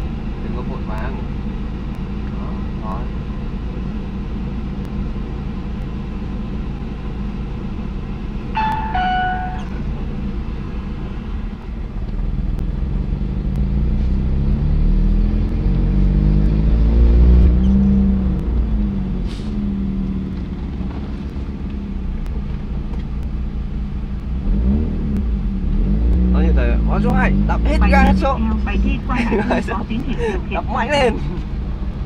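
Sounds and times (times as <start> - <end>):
car engine accelerating: 0.0 - 32.0
two-note electronic chime: 8.6 - 9.8.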